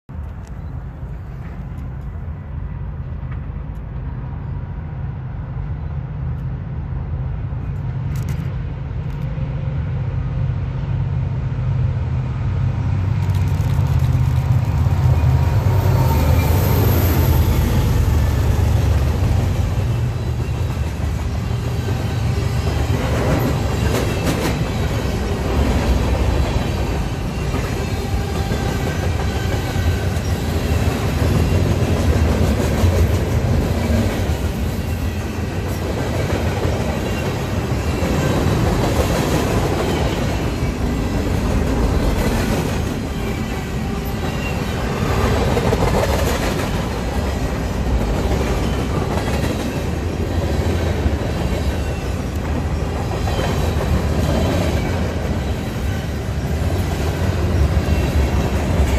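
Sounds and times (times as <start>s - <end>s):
freight train rolling past: 0.1s - 58.9s
scattered clicks: 13.2s - 14.8s.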